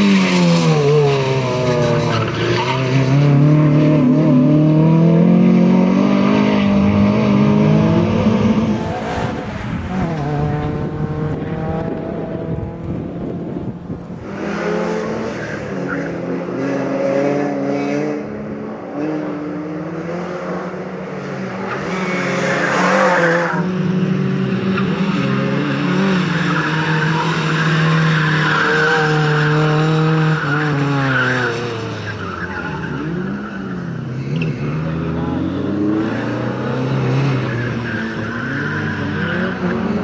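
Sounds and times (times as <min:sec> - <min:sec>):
tyres squealing on asphalt: 0:00.0 - 0:04.1, 0:14.4 - 0:16.9, 0:21.2 - 0:23.7, 0:24.7 - 0:40.0
car engine revving: 0:00.0 - 0:40.0.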